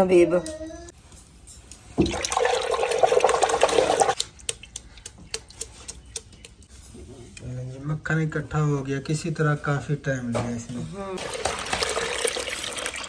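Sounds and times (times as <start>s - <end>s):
drips and small splashes: 1.9s - 6.2s, 11.2s - 13.0s.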